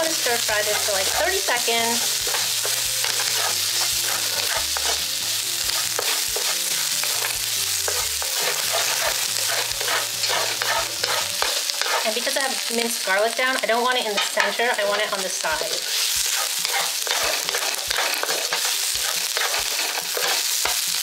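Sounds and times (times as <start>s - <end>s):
onion and garlic sizzling in oil: 0.0s - 21.0s
wooden spatula scraping pan: 0.1s - 12.3s, 14.1s - 20.9s.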